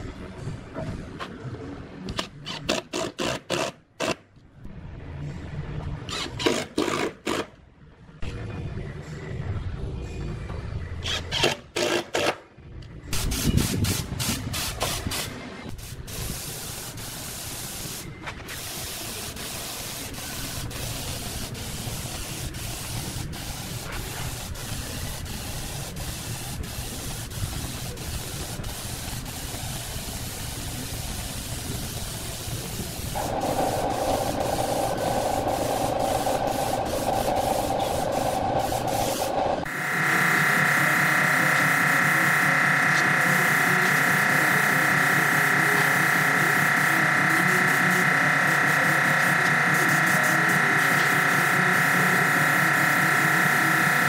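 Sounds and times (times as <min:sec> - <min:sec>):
paint spray gun hissing: 0:13.3 - 0:54.0
steady whirring: 0:33.2 - 0:54.0.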